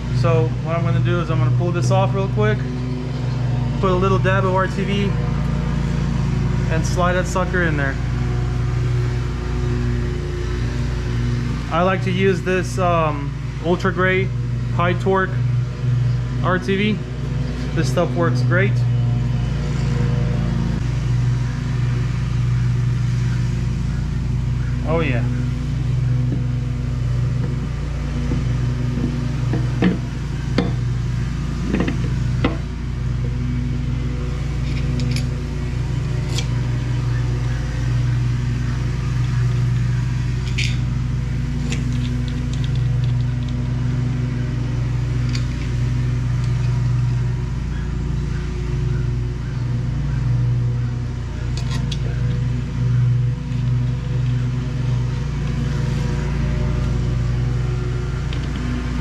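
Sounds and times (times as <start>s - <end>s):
lawn mower engine droning: 0.0s - 59.0s
metal parts clicking and tapping: 27.4s - 30.8s, 31.6s - 32.6s, 34.6s - 35.3s, 40.4s - 40.8s, 41.6s - 43.6s, 45.2s - 45.7s, 51.5s - 52.4s, 58.3s - 58.6s.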